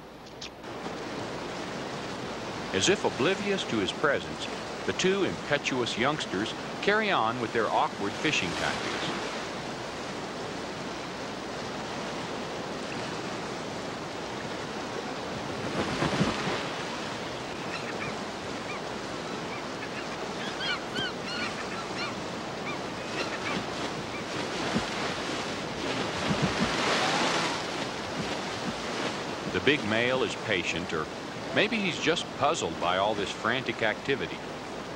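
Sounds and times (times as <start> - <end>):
river rapids rushing: 0.7 - 33.4
bears splashing through water: 15.2 - 17.5, 23.0 - 29.6
high gull calls: 17.2 - 24.4.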